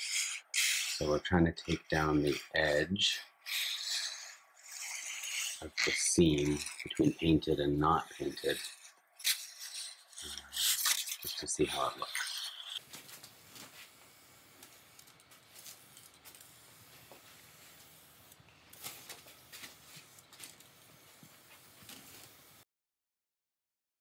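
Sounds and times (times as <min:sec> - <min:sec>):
sandpaper rubbing metal: 0:00.0 - 0:12.9
faint steady hiss: 0:00.0 - 0:22.6.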